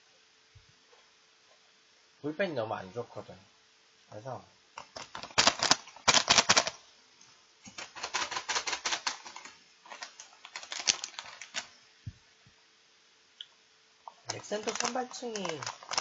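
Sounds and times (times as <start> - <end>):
chip bag crinkling: 4.8 - 6.8, 7.6 - 11.8, 14.1 - 16.0.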